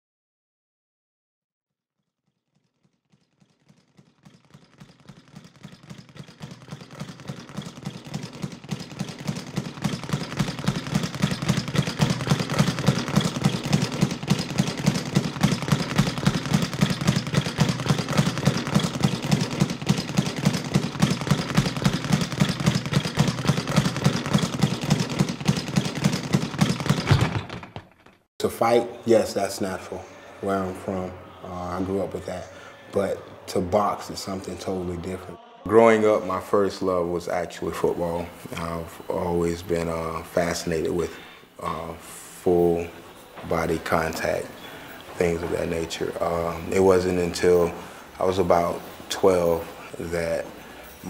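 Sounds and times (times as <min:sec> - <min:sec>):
speed bag being punched: 0:02.5 - 0:28.2.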